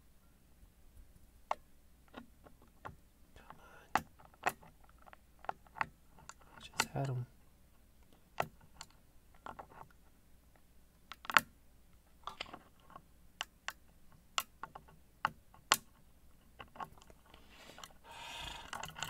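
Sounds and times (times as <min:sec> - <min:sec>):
lock pick clicking and scraping: 0:03.9 - 0:07.2, 0:08.1 - 0:10.0, 0:12.2 - 0:19.0.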